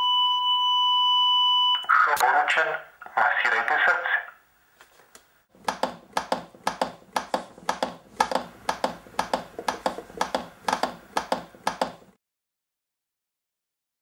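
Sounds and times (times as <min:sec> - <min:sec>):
manikin clicking under compressions: 0:05.1 - 0:12.2.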